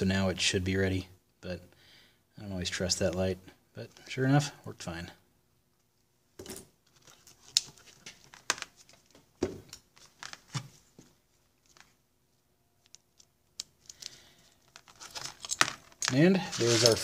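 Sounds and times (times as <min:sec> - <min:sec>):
wire leads rustling and crinkling: 0:06.8 - 0:17.0.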